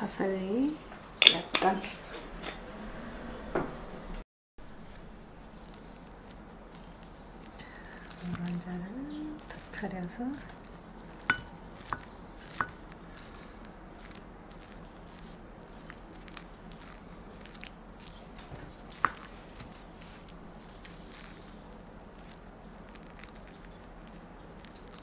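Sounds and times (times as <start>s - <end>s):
spoon stirring fried rice: 4.8s - 25.0s
spoon knocking on bowl: 11.2s - 12.8s.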